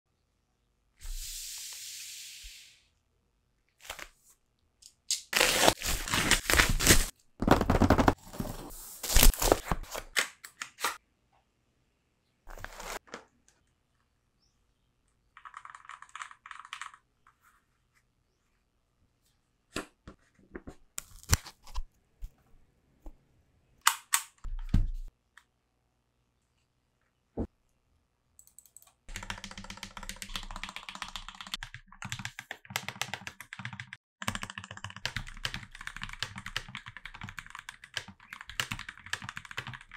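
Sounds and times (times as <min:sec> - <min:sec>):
packaging crinkling and tearing: 0:05.3 - 0:07.1.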